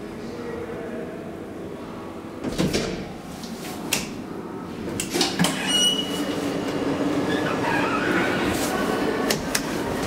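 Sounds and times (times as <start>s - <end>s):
elevator door hum: 4.8s - 10.0s.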